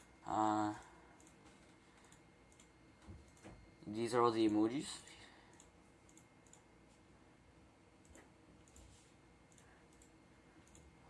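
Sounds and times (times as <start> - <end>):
faint computer mouse clicks: 5.5 - 6.7, 9.5 - 10.9.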